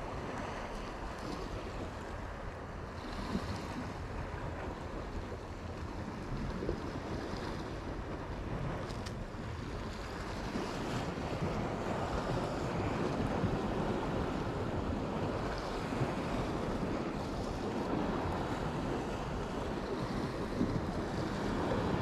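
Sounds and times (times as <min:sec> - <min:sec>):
wind buffeting microphone: 0:00.0 - 0:22.0
sea washing against rocks: 0:05.8 - 0:22.0.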